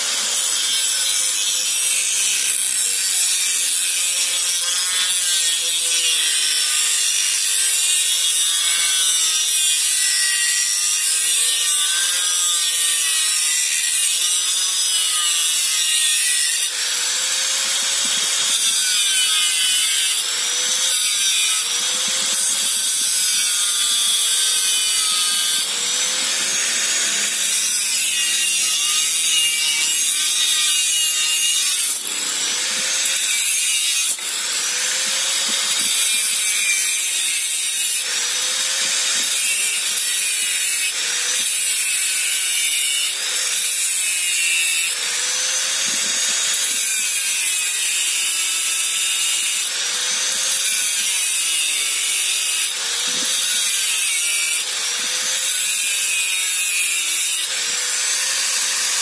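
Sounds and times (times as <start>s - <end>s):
grinder motor whine: 31.9s - 33.2s.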